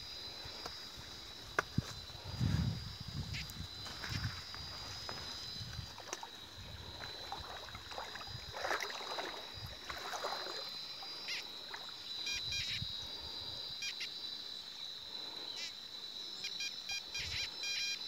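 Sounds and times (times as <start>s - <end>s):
water sloshing from wading: 4.0s - 12.2s
metal detector beeps: 12.3s - 12.8s, 16.6s - 18.0s.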